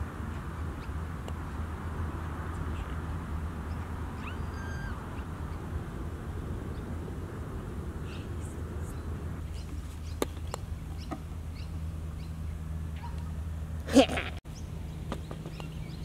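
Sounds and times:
wind rumble on microphone: 0:00.0 - 0:11.1
birds chirping: 0:00.0 - 0:13.8, 0:14.5 - 0:16.0.

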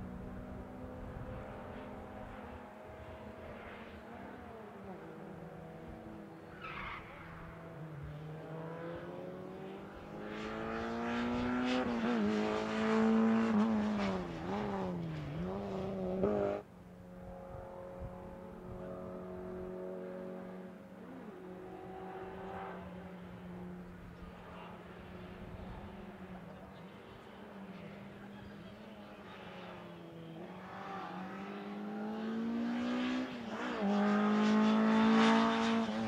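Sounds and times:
rally car engine revving: 0:08.4 - 0:16.6, 0:29.4 - 0:36.0.

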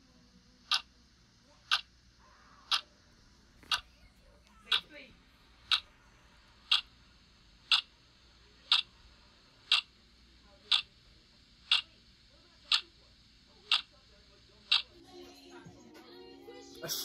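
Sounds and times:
clock ticking: 0:00.7 - 0:00.9, 0:06.7 - 0:06.9, 0:07.7 - 0:07.9, 0:08.7 - 0:08.9, 0:09.7 - 0:09.9, 0:10.7 - 0:10.9, 0:11.7 - 0:11.9, 0:12.7 - 0:12.9, 0:13.7 - 0:13.9.

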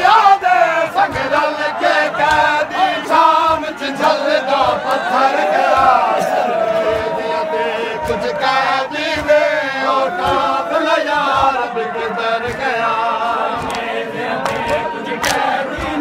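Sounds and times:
crowd of men chanting: 0:00.0 - 0:16.0
hands slapping chests: 0:01.9 - 0:05.1, 0:13.5 - 0:16.0.

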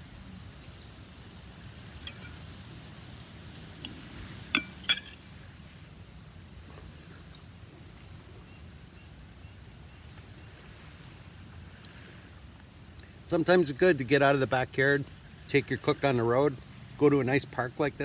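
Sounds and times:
faint outdoor background: 0:00.0 - 0:18.0
fork clinking against dish: 0:02.1 - 0:02.4, 0:04.6 - 0:05.2.

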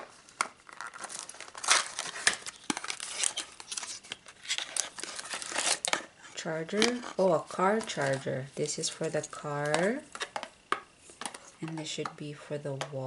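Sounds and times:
cardboard packaging rustling: 0:00.0 - 0:08.9.

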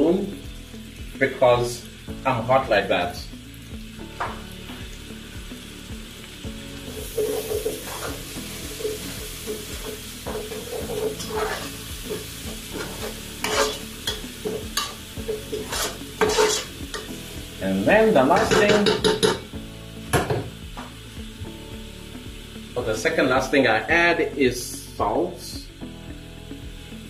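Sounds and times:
sauce sizzling in a pot: 0:00.0 - 0:27.0
spoon scraping a metal pot: 0:10.3 - 0:17.1.

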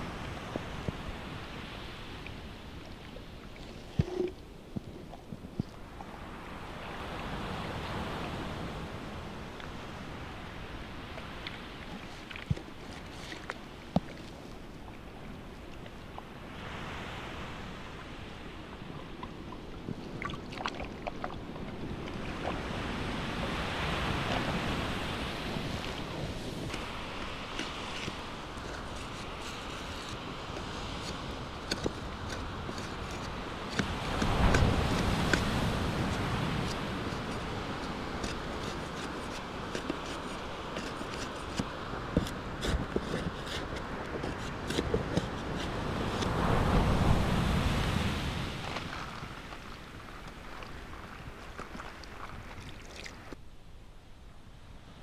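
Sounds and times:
sea surf washing: 0:05.9 - 0:53.4
wind noise on microphone: 0:16.3 - 0:53.4
knife chopping a stick: 0:31.0 - 0:46.3.

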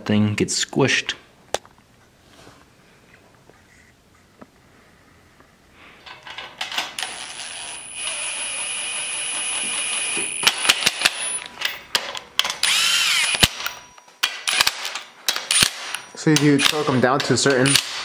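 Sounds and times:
power ratchet motor whine: 0:07.0 - 0:11.5, 0:12.6 - 0:13.9.

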